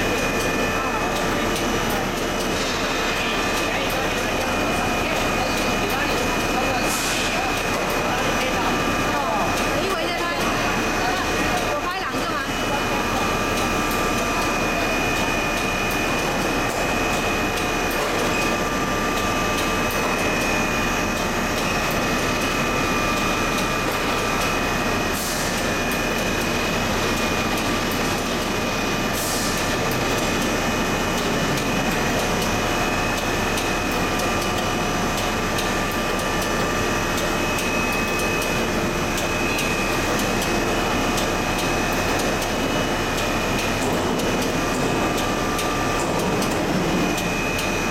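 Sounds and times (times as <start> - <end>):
machine running with whine: 0.0 - 47.9.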